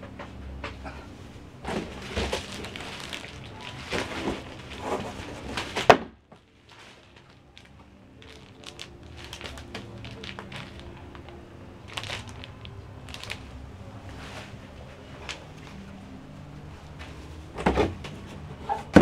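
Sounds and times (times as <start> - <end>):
plastic pouch crackling: 1.6 - 14.2
plastic wrapping crinkling: 1.6 - 16.1.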